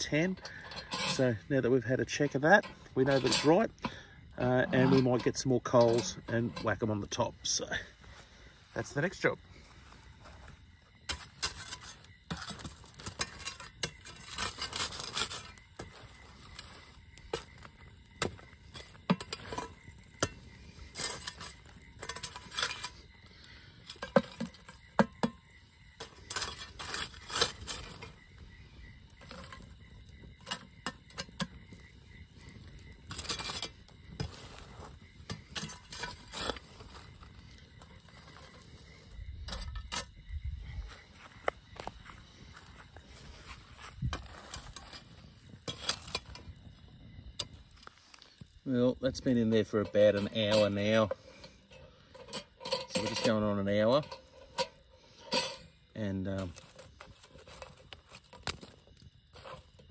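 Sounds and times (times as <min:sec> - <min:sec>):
metal shovel scraping coals: 0:00.0 - 0:59.9
metal clinking on metal: 0:49.8 - 0:55.7.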